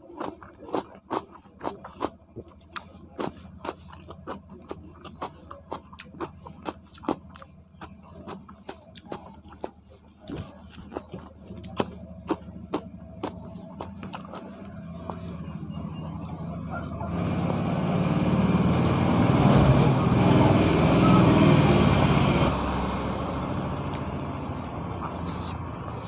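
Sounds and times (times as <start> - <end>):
person chewing food: 0.0 - 17.2, 23.8 - 26.0
wet mouth clicks and smacks: 0.2 - 15.4, 23.9 - 26.0.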